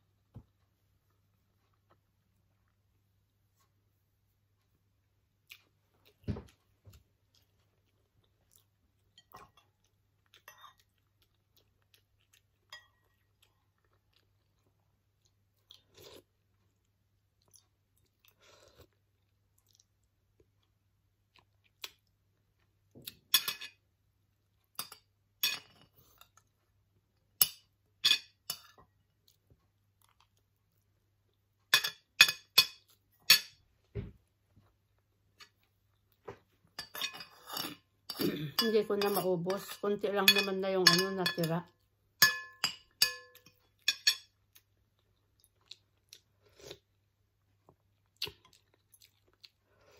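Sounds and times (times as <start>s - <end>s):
chewing rice: 4.5s - 23.3s, 28.6s - 31.7s, 43.4s - 49.9s.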